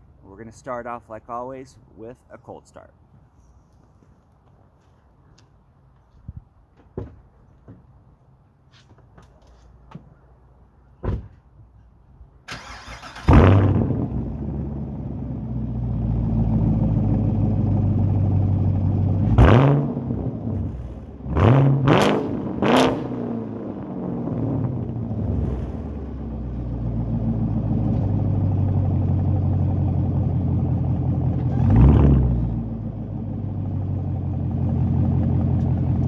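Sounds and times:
car engine idling and revving: 13.2s - 36.0s.

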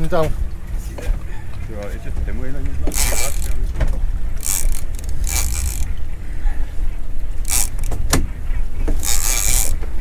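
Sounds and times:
steady low rumble: 0.0s - 10.0s
fishing reel drag hissing: 2.9s - 3.6s, 4.4s - 5.9s, 7.4s - 7.9s, 9.0s - 9.8s.

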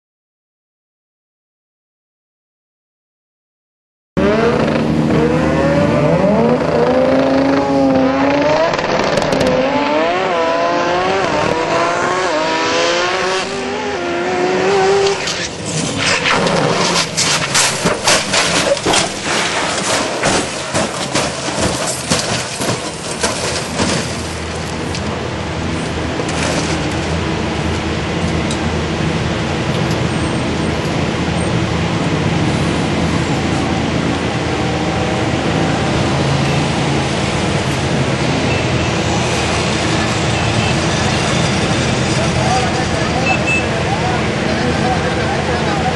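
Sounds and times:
racing car engine revving: 4.2s - 24.2s
car crashing bangs and scrapes: 15.1s - 24.6s, 26.2s - 27.0s.

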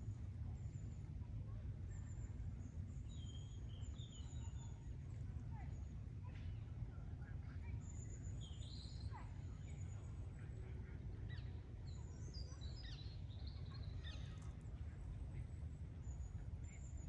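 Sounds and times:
small birds chirping: 11.3s - 14.7s.

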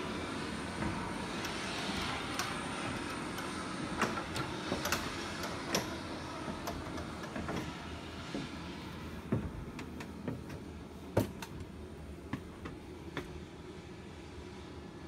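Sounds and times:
knocks and clanks of climbing: 0.8s - 8.6s, 9.2s - 11.6s.

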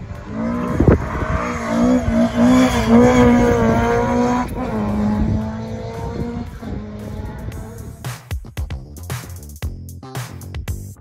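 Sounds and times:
car engine revving: 0.0s - 8.2s.

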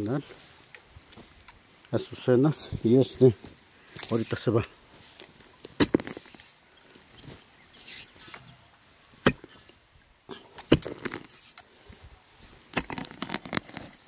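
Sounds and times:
axe chopping into roots: 5.8s - 6.4s, 9.2s - 9.7s, 10.6s - 11.4s.

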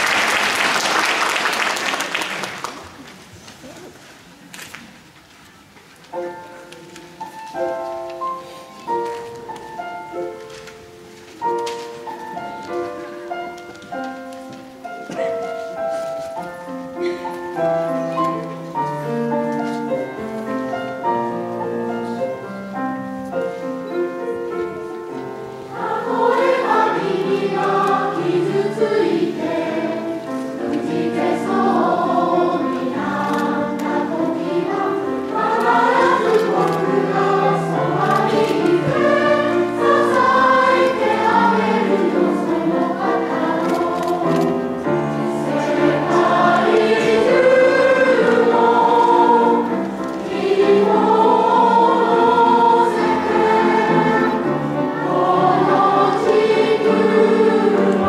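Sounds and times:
piano accompaniment: 5.6s - 58.0s
mixed choir singing: 25.6s - 58.0s.

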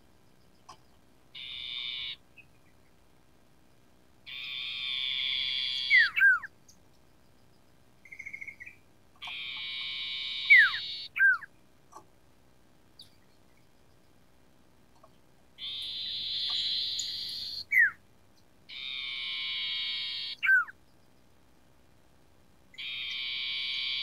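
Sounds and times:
bird down-slurred whistles: 4.3s - 6.5s, 8.1s - 11.5s, 15.6s - 18.0s, 19.4s - 20.8s.

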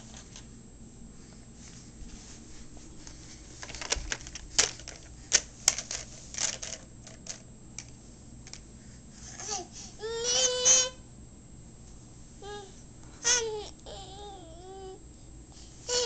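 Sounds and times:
plastic toy train clicking: 3.6s - 7.9s.

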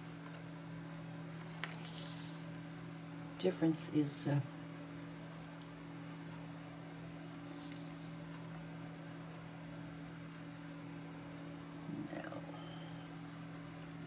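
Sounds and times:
steady low hum: 0.0s - 14.0s
colored pencil rubbing on paper: 1.6s - 4.2s, 7.0s - 14.0s.

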